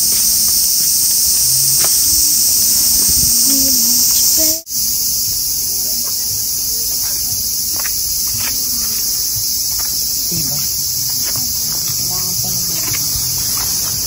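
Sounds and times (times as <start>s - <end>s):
cicadas chorus: 0.0s - 14.0s
low voices: 1.2s - 4.7s, 10.2s - 14.0s.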